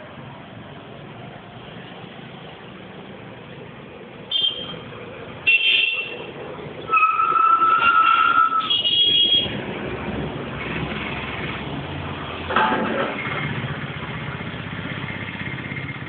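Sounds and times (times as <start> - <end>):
low traffic rumble: 0.0 - 16.0
vehicle horns honking: 4.3 - 4.8, 5.4 - 9.6.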